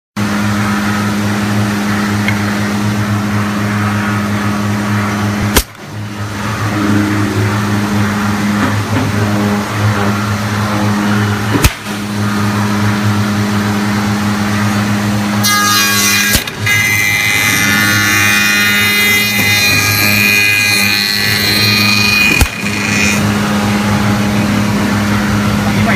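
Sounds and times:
electric motors humming: 0.2s - 25.9s
harsh high-pitched machine noise: 0.2s - 25.9s
sharp machine clunks: 11.5s - 12.0s, 16.3s - 16.8s, 21.6s - 23.1s.

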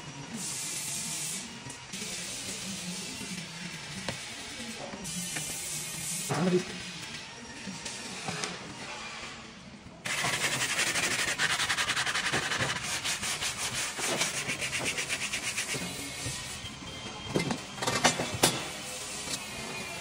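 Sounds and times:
hand sanding wood: 10.1s - 16.3s.

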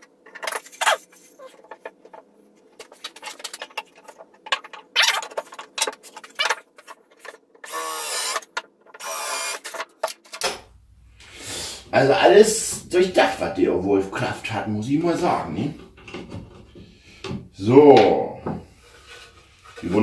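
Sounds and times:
cordless drill drilling wood: 7.7s - 8.4s, 9.0s - 9.6s.

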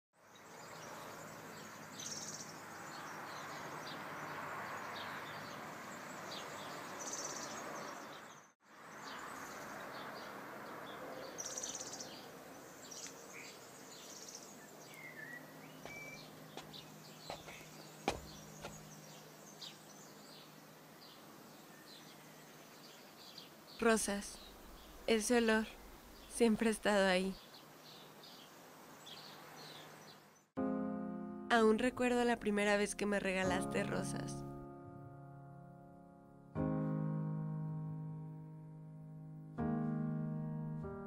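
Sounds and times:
birds chirping: 0.2s - 30.5s
street traffic: 0.5s - 13.6s, 15.0s - 21.5s.

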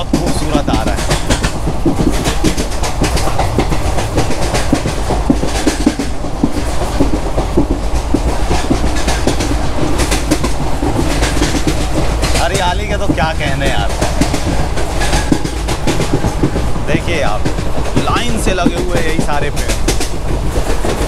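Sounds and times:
rail clicks and clacks: 0.0s - 21.0s
train wheels rumbling: 0.0s - 21.0s.

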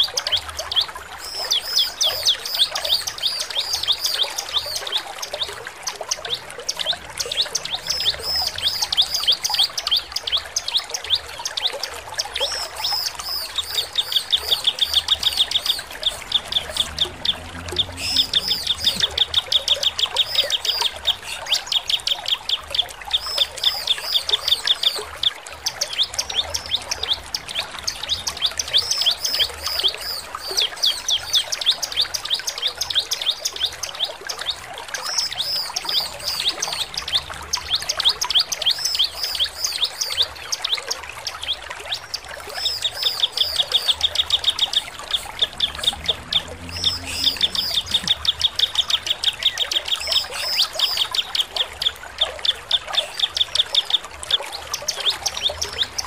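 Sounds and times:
bird singing high chirps: 12.4s - 22.6s, 42.5s - 51.4s.

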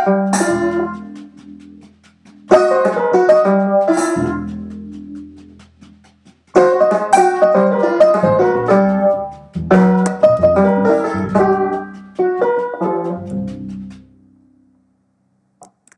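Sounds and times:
toy piano playing jazzy tune: 0.0s - 1.4s, 2.5s - 4.7s, 6.6s - 14.0s.

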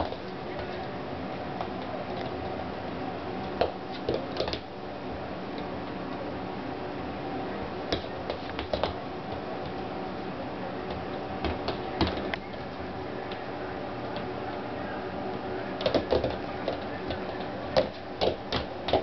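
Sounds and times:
steady low hum: 0.0s - 19.0s
hooves tapping on wood floor: 7.9s - 9.8s, 10.9s - 12.7s, 15.8s - 19.0s.

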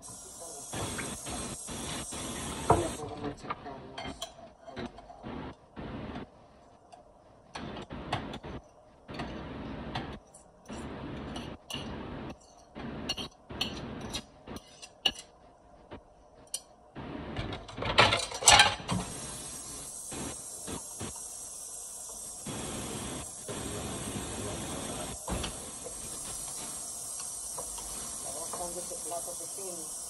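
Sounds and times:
steady hiss: 0.0s - 3.2s, 18.9s - 30.0s
dishes and utensils clattering: 4.0s - 5.2s, 17.5s - 19.1s.

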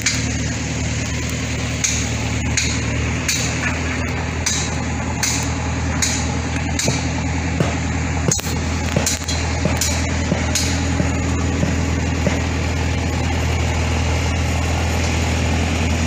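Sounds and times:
heavy machinery engine drone: 0.0s - 16.0s
sharp knocks and clicks: 1.8s - 12.5s.

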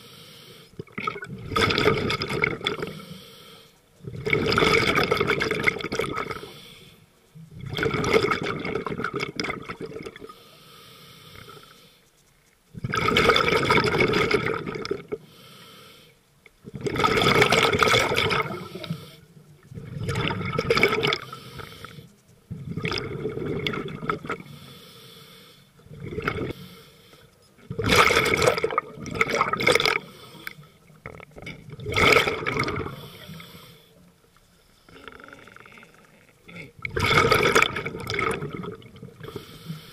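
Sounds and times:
regulator inhalation hiss: 0.0s - 0.8s, 2.7s - 4.1s, 6.1s - 7.6s, 10.1s - 12.6s, 15.0s - 16.4s, 18.4s - 19.6s, 21.1s - 22.3s, 24.3s - 27.5s, 29.9s - 31.0s, 32.8s - 35.5s, 39.2s - 39.9s
regulator exhaled bubbles gushing: 0.8s - 2.9s, 4.0s - 6.4s, 7.5s - 10.3s, 12.7s - 15.2s, 16.6s - 19.0s, 19.6s - 21.4s, 22.5s - 24.5s, 25.8s - 26.6s, 27.6s - 33.4s, 34.9s - 39.4s.

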